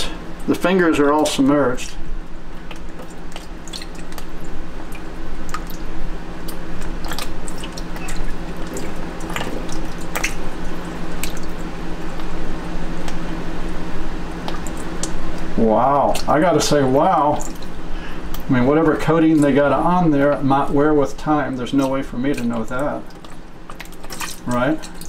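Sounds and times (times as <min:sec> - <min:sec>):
water sloshing in a tub: 0:00.0 - 0:25.0
wet glove squishes: 0:02.6 - 0:12.4, 0:21.6 - 0:25.0.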